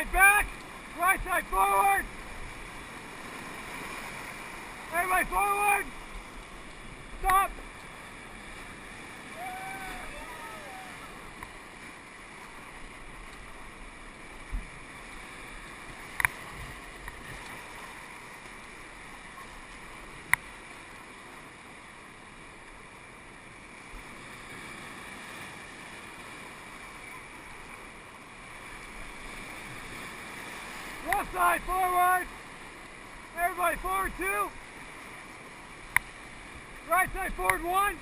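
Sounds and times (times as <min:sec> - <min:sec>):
whitewater rapids rushing: 0:00.0 - 0:14.0, 0:28.4 - 0:38.0.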